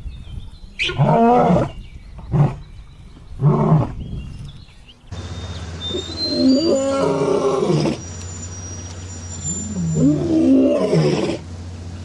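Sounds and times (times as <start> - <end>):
big cat roaring: 6.3 - 8.0, 9.7 - 11.4.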